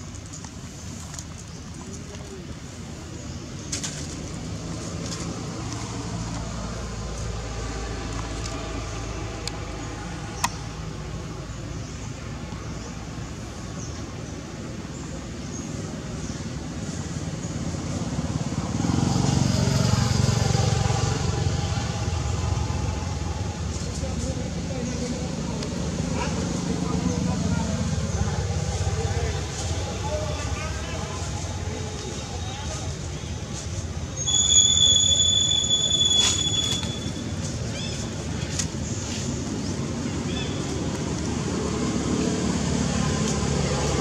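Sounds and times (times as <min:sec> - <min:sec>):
outdoor background noise: 0:00.0 - 0:44.0
vehicle engine passing by: 0:17.1 - 0:34.0, 0:37.4 - 0:44.0.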